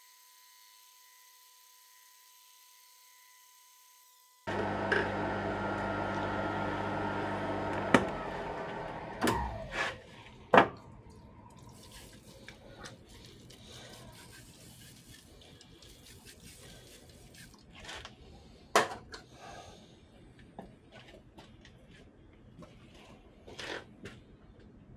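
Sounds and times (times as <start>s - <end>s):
milling machine running: 4.5s - 9.6s.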